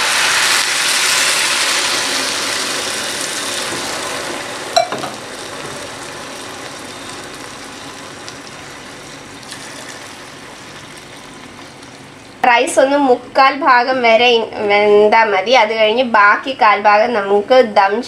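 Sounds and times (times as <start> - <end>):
rice sizzling in a hot pot: 0.0 - 12.4
water pouring: 5.1 - 12.4.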